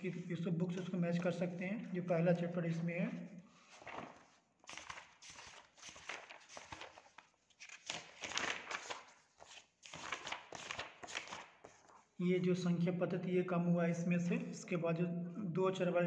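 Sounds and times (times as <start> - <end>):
book pages turning: 3.6 - 12.1.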